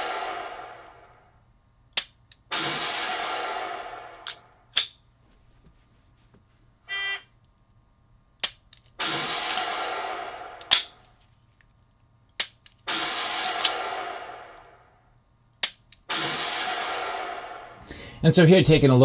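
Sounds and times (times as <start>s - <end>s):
gunshot sound effect: 0.0s - 1.1s, 2.5s - 4.6s, 9.0s - 11.0s, 12.9s - 14.9s, 16.1s - 18.1s.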